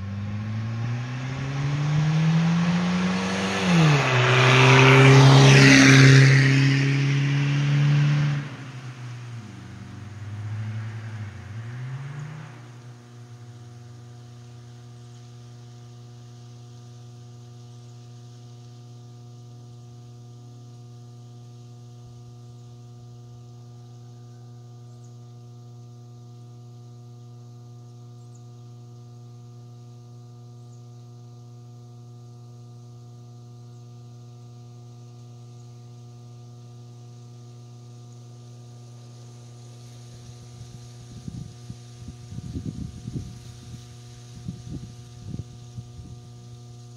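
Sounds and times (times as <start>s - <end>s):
electrical hum: 0.0s - 46.9s
high hiss: 38.8s - 46.9s.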